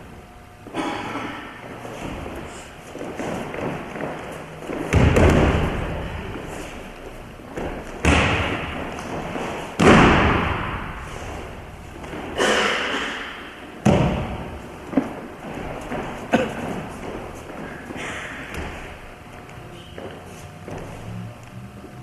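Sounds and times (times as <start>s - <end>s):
body thudding onto padded mats: 3.1s - 6.2s, 7.5s - 12.4s, 13.8s - 19.1s.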